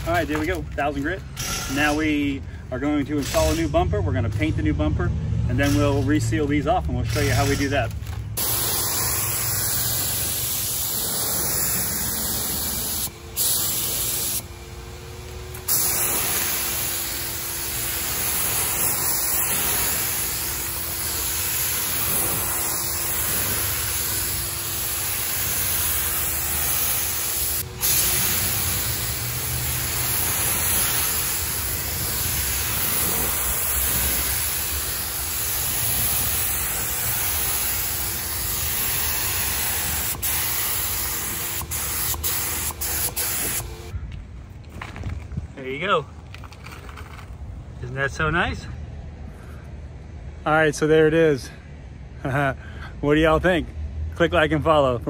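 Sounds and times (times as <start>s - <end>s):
paint spray gun hissing: 8.4s - 43.9s.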